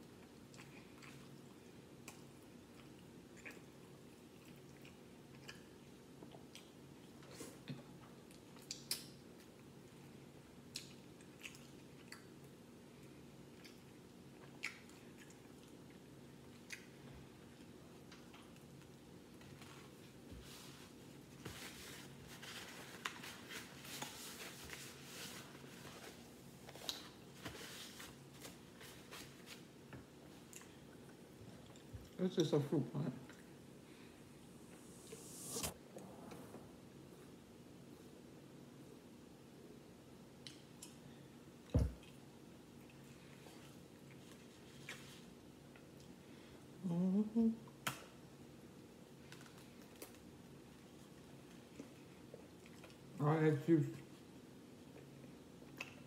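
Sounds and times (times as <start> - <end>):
quiet chewing: 0.0 - 32.6, 49.3 - 53.2, 54.0 - 56.0
steady low hum: 12.7 - 44.6.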